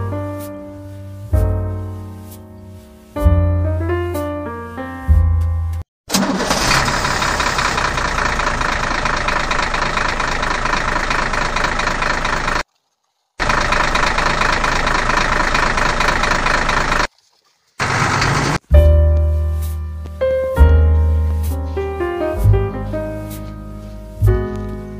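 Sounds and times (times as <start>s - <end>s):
truck engine running: 6.2s - 12.7s, 13.4s - 17.1s, 17.8s - 24.9s.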